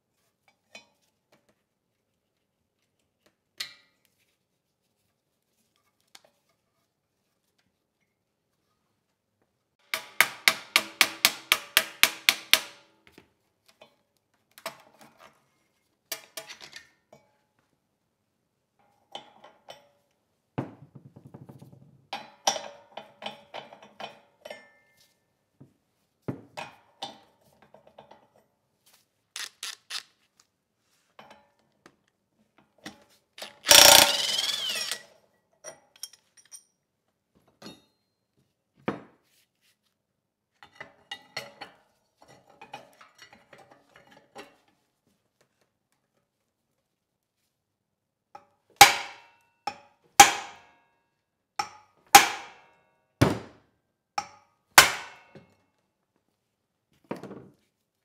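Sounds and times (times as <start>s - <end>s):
hand ratchet clicking: 29.4s - 30.1s, 33.4s - 35.0s
metal tools clicking and knocking: 33.4s - 35.0s, 35.6s - 36.8s
power tool running: 33.6s - 35.0s.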